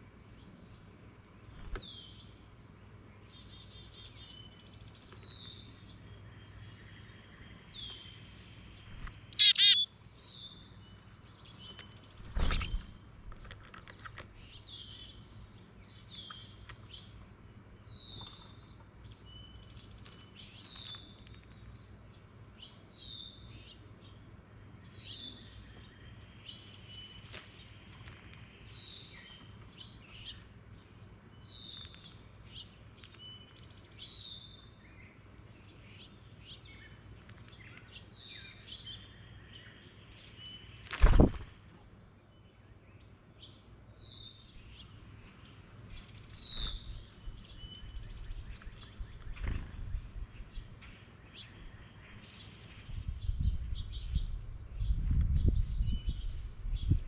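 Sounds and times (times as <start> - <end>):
faint bird chirps: 3.2 - 13.0
bird repeating high down-slurred note: 9.4 - 9.9.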